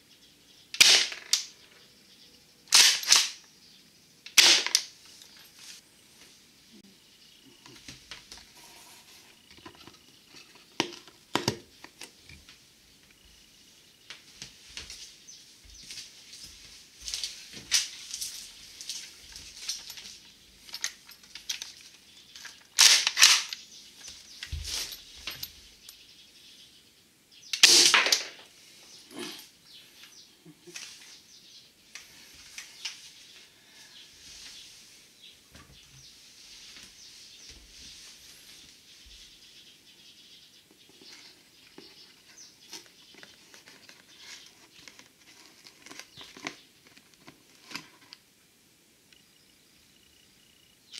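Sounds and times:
airsoft shotgun shots: 0.8 - 1.3, 2.7 - 3.4, 27.6 - 28.3
clicks and handling noises: 7.5 - 13.2, 15.8 - 26.0, 40.7 - 48.2.

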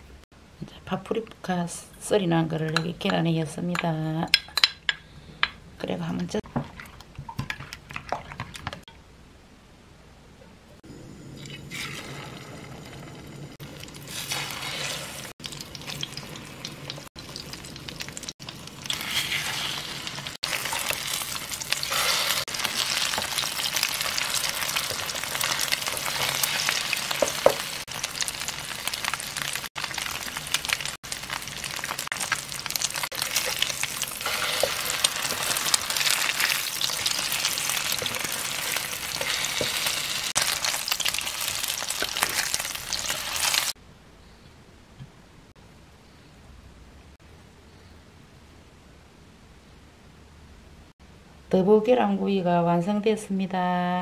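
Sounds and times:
tofu sizzling in oil: 13.7 - 43.8.

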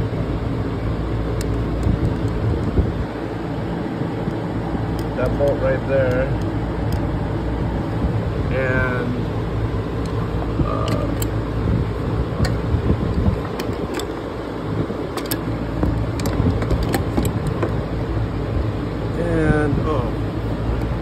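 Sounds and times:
steady low hum: 0.0 - 21.0
metallic clicks of hand tools: 15.2 - 15.4.

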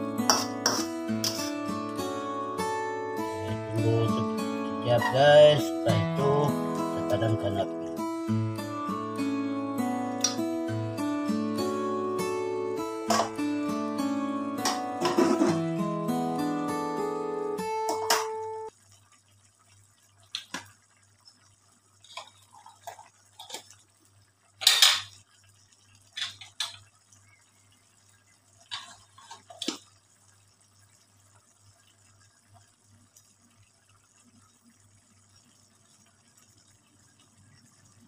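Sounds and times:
guitar music: 0.0 - 18.7
kitchenware clinking: 0.3 - 1.5, 13.1 - 13.4, 14.6 - 15.6, 17.8 - 18.4, 24.6 - 25.2.

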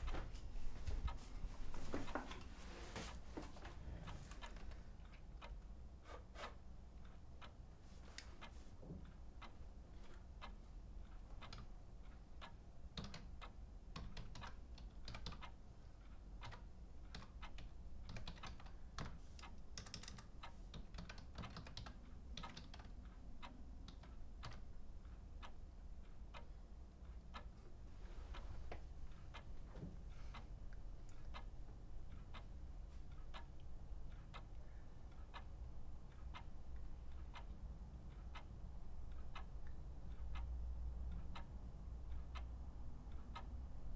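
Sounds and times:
low steady hum: 0.0 - 43.9
computer keyboard typing: 13.0 - 13.3, 13.9 - 15.5, 16.4 - 22.9.

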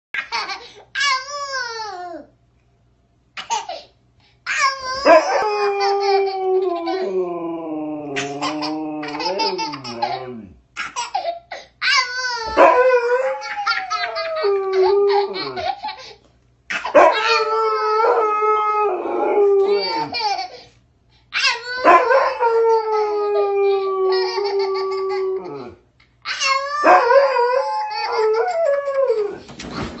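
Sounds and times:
dog howling: 5.0 - 10.6, 12.4 - 15.7, 17.0 - 20.2, 21.8 - 25.8, 26.7 - 29.4
toddler laughing and squealing: 8.2 - 12.6, 13.4 - 16.1, 19.6 - 20.6.

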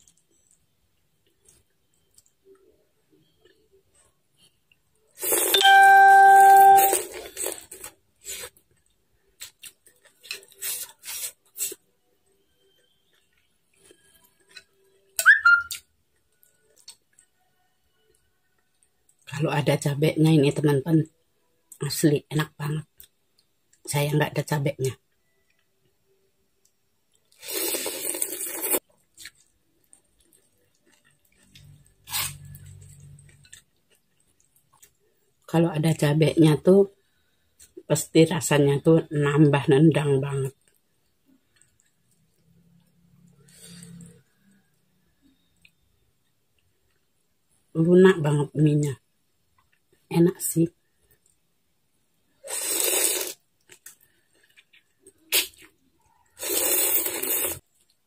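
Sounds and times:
quiet chewing with clicks: 0.0 - 5.2, 16.1 - 19.3, 25.0 - 27.4, 28.8 - 32.0, 32.6 - 35.5, 40.5 - 47.3, 49.5 - 50.1, 50.8 - 51.5, 53.6 - 56.4
person slurping noodles: 27.4 - 28.8, 52.4 - 53.4, 56.4 - 57.6.

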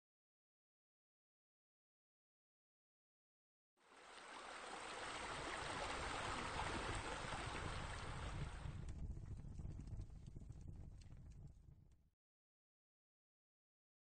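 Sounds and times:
water splashing in a pool: 3.8 - 8.8
low rumble: 7.8 - 12.0.

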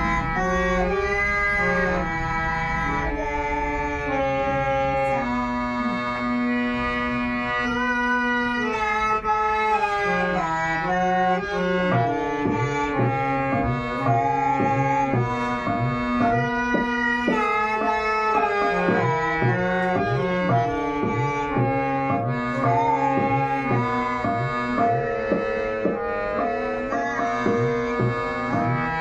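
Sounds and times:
harmonium melody: 0.0 - 29.0
tabla drumming: 11.7 - 29.0.

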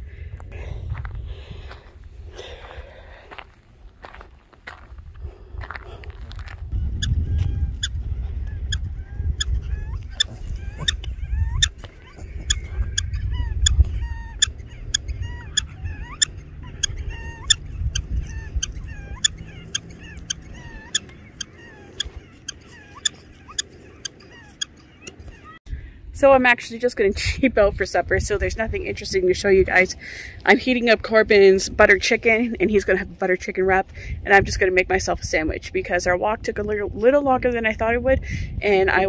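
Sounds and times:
wind buffeting microphone: 0.0 - 39.0
prairie dogs chirping barks: 6.6 - 25.6.

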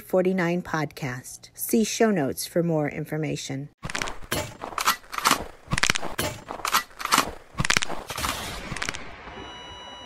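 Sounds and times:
sharp bangs: 3.8 - 9.5
high ringing tone: 9.1 - 10.0.

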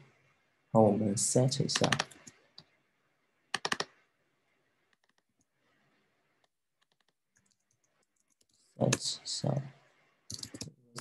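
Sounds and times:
keyboard keystrokes: 3.6 - 3.9.

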